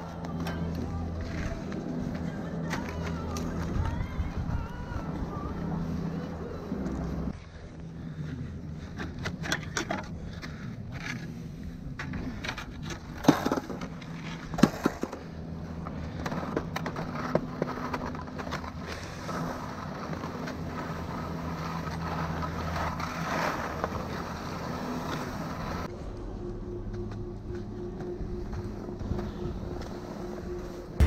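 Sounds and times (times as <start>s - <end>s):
ski and pole clacks: 0.0s - 4.0s
skis sliding on snow: 13.0s - 25.9s.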